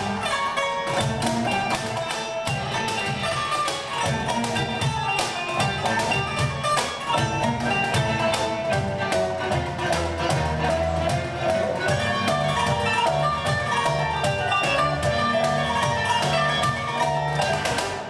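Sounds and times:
hand percussion beat: 0.0 - 18.0
plucked strings: 0.0 - 18.0
violins and cello: 7.1 - 18.0.

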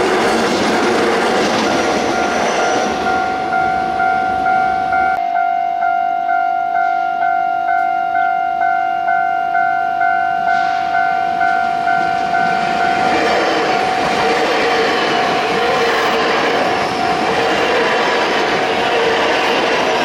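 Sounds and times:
train passing: 0.0 - 5.2, 8.6 - 20.0
level crossing warning bell: 2.1 - 14.3.

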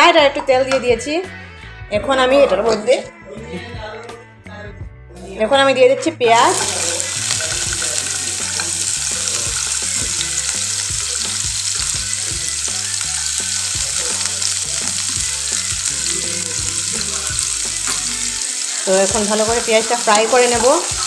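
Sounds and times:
onions sizzling in hot oil: 6.4 - 21.0.

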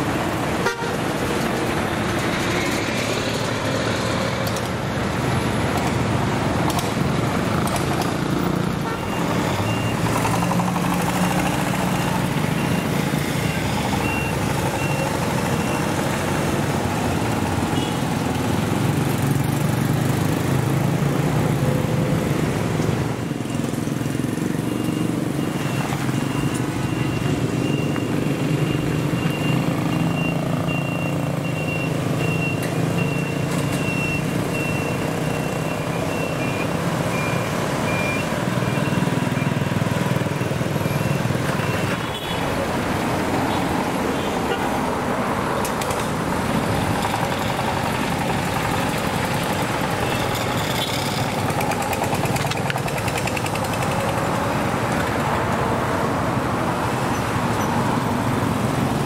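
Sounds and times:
motorcycles passing: 0.0 - 32.2, 32.8 - 59.0
tractor engine: 32.1 - 55.6.

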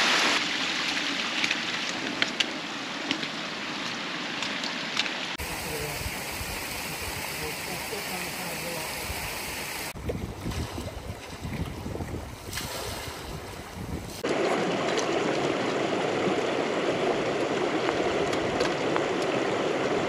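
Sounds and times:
waves lapping at shore: 0.0 - 20.0
wind gusting over microphone: 5.4 - 20.0
rocky stream rushing: 14.2 - 20.0.

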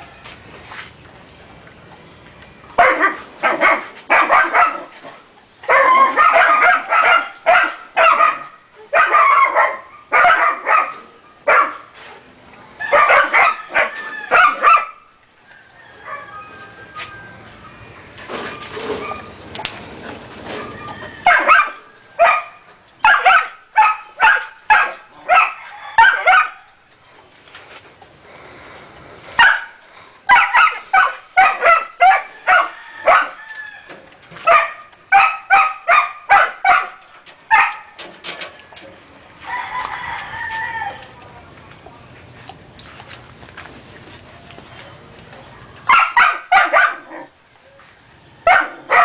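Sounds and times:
chickens calling: 15.7 - 22.5.

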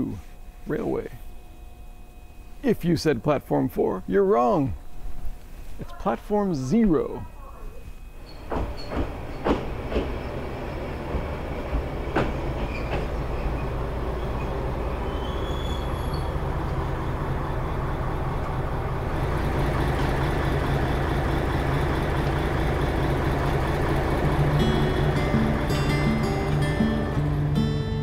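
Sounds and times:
diesel railcar engine idling: 8.2 - 28.0.

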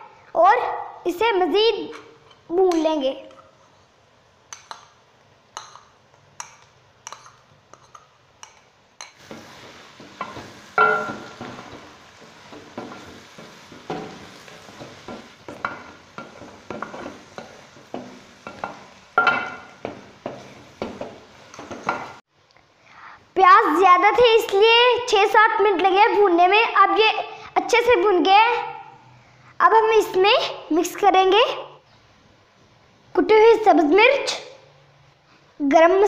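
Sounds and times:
frying sizzle: 4.0 - 22.3
wooden spoon scraping a pan: 7.0 - 22.2.

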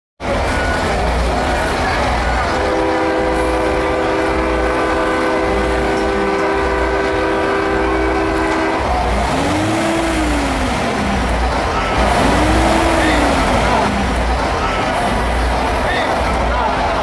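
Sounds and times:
truck air horn chord: 2.4 - 15.4.

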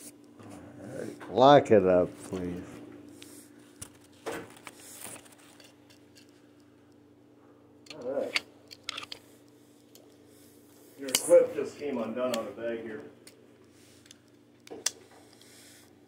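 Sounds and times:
steady low hum: 0.0 - 16.0
rustling of handled things: 2.1 - 6.6.

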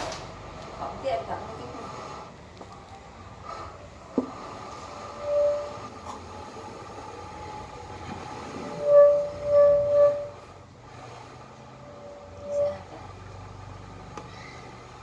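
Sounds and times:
steady background hum: 0.0 - 15.0
horn tooting: 8.6 - 10.5.

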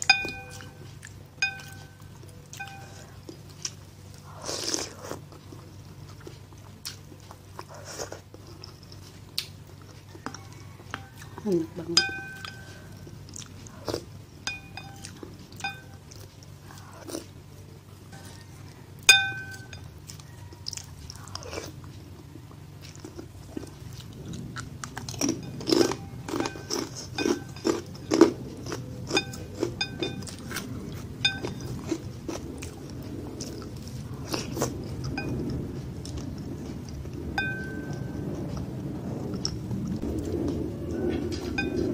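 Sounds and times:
utensils clinking on ceramic bowl: 0.0 - 3.2, 11.9 - 13.0, 14.4 - 16.2, 19.0 - 20.0, 25.1 - 32.4, 37.4 - 38.2, 41.1 - 41.9
mouth chewing noodles: 0.0 - 41.9.

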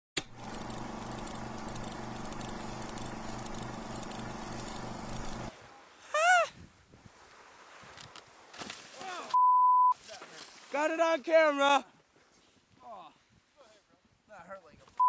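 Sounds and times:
electronic hum with pulsing drone: 0.2 - 5.5.

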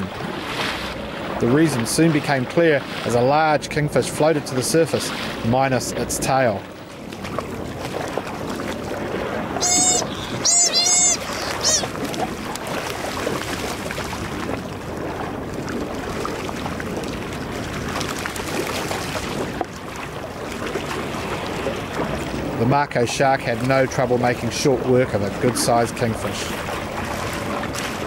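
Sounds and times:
boat noise: 0.0 - 28.0
sea wash: 0.0 - 28.0
seabirds squawking: 9.6 - 12.2.

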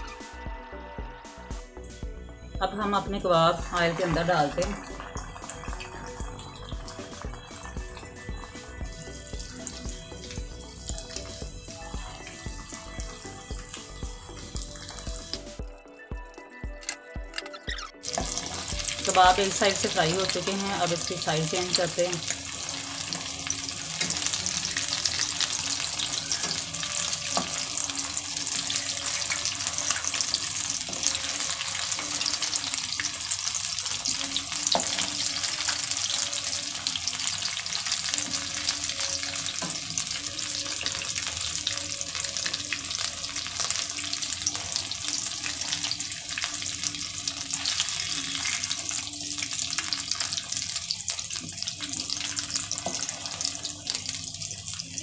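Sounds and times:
food sizzling in hot oil: 2.8 - 16.1, 17.7 - 55.0.

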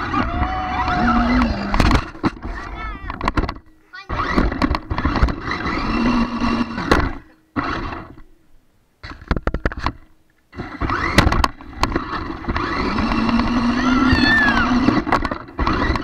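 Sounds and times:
toy car motor whirring: 4.0 - 8.2, 10.5 - 16.0.

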